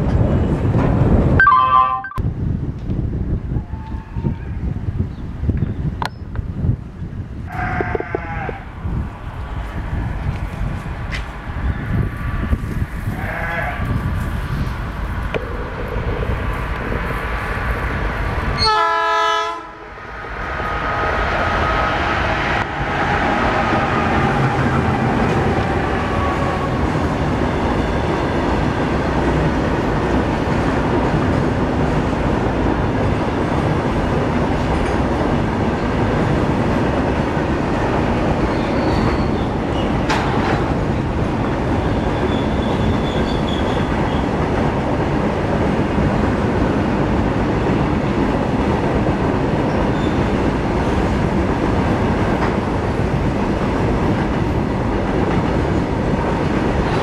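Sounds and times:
freight train rumbling past: 0.0s - 1.6s, 2.2s - 57.0s
locomotive horn blast: 18.6s - 19.8s.

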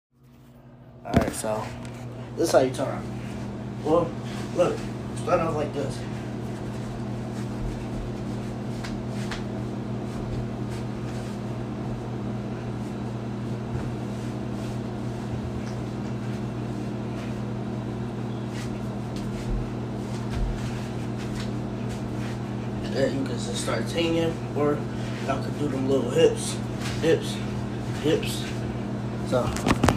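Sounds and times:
low mechanical hum: 0.2s - 29.9s
footsteps on wooden floor: 19.1s - 22.2s.

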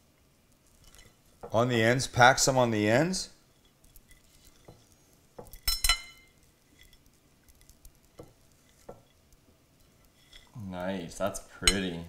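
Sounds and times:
sharp clinks against ceramic bowl: 5.6s - 6.3s.

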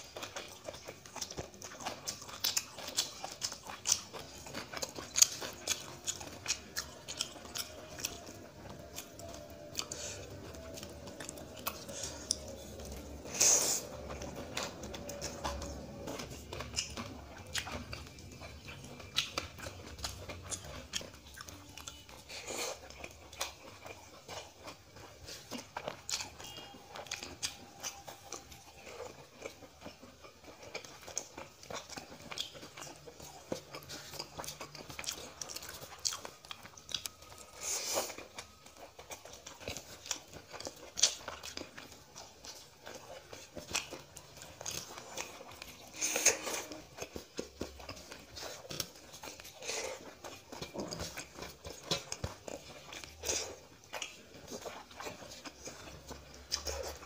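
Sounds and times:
person chewing with wet mouth sounds: 0.0s - 57.0s.

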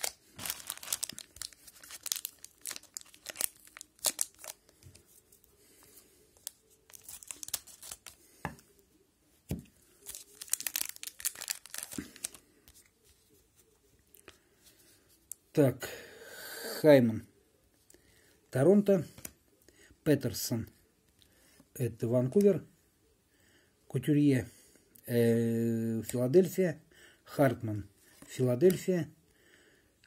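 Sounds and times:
foil wrapper tearing and crinkling: 0.0s - 4.7s, 6.4s - 8.2s, 10.0s - 12.4s.

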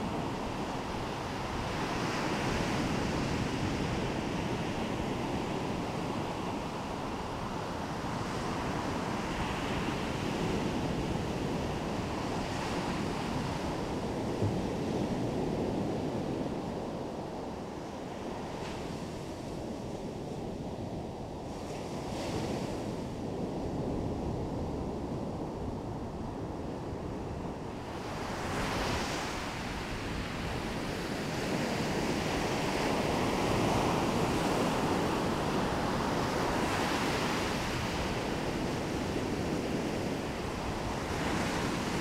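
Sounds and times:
wind blowing over microphone: 0.0s - 42.0s
ocean surf washing onto beach: 26.9s - 42.0s.

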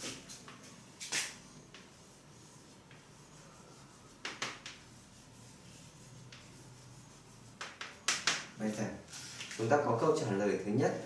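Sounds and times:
writing on a board: 1.2s - 8.5s.

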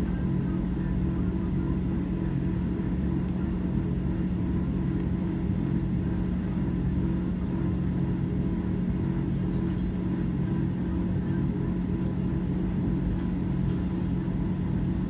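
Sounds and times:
jet engines drone in cabin: 0.0s - 15.0s.

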